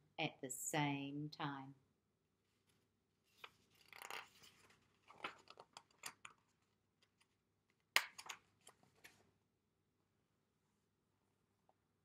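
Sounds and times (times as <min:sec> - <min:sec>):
paper pages rustling: 0:02.6 - 0:07.4.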